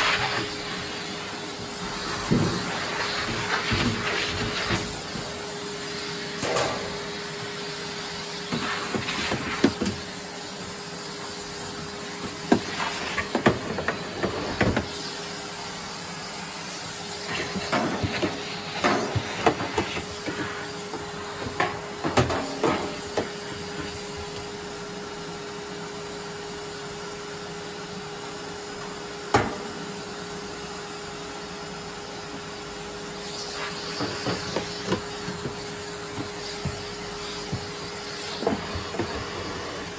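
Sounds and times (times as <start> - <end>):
knocks and scrapes inside dryer: 0.0 - 5.6, 17.2 - 24.3, 33.5 - 39.9
vacuum cleaner whining: 0.0 - 39.9.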